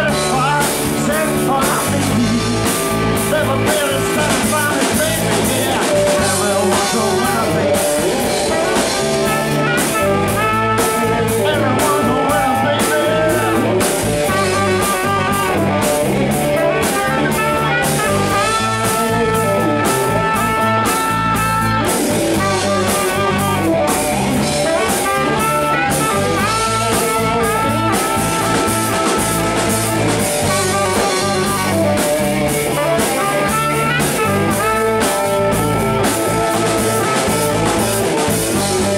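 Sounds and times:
bass guitar: 0.0s - 38.9s
drum kit beat: 0.0s - 38.9s
electric guitar: 0.0s - 38.9s.

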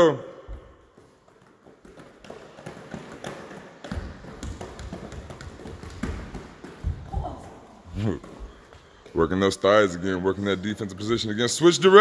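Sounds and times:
balls thudding on wooden floor: 0.5s - 9.6s
hands slapping basketballs: 0.5s - 9.7s.

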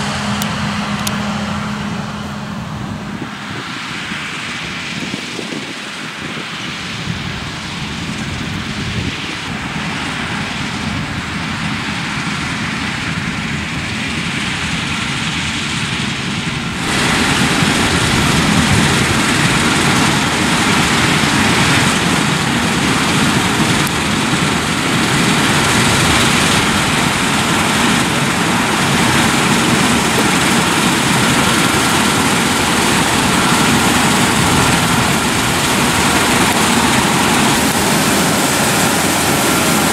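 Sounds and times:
combine harvester threshing: 11.6s - 39.9s.

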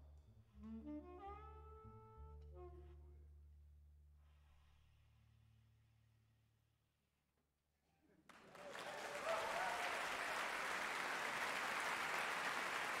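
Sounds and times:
audience applauding: 8.3s - 13.0s.

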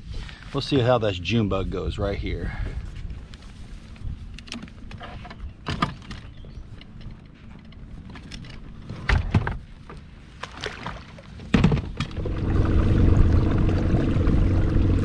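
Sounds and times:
handling clicks and knocks: 4.4s - 10.0s
boat motor running: 12.0s - 15.0s.

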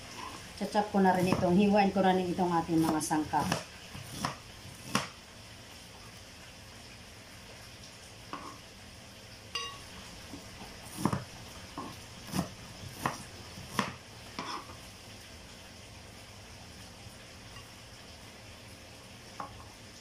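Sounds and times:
knife chopping on plastic board: 2.8s - 5.1s, 10.9s - 14.0s
light ringing clink: 9.5s - 9.9s.

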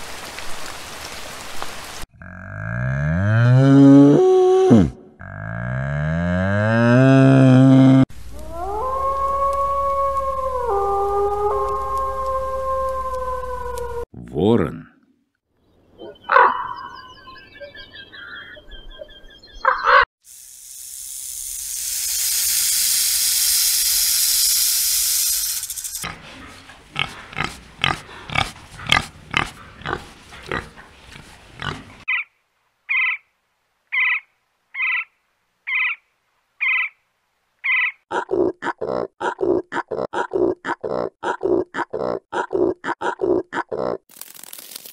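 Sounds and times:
boar grunting: 2.1s - 4.1s, 4.7s - 8.0s, 26.0s - 32.1s, 38.1s - 44.0s
snake hissing: 20.3s - 30.6s.

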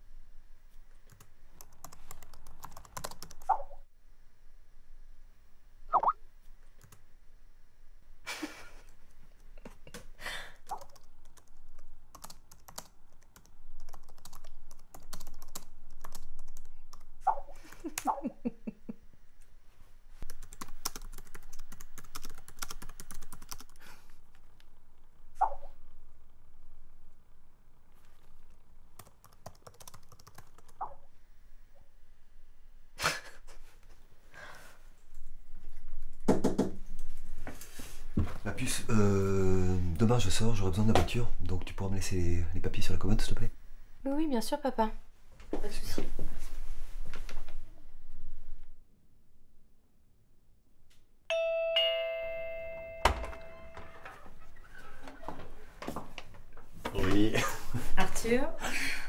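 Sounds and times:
laptop keyboard typing: 1.1s - 3.6s, 10.6s - 18.0s, 20.2s - 24.1s, 28.9s - 30.9s.

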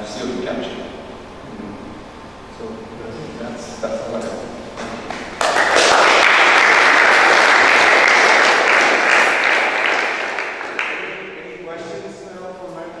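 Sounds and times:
audience applauding: 5.0s - 11.4s.

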